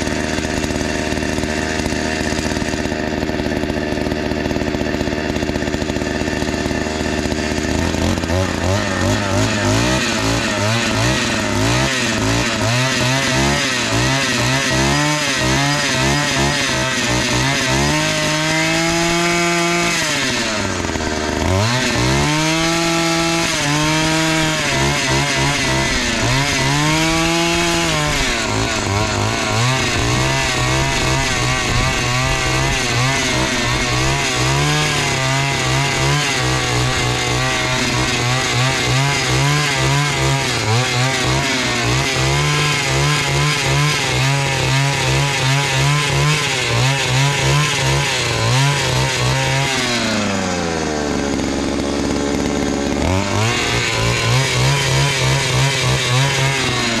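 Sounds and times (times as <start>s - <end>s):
earth auger engine revving: 0.0s - 57.0s.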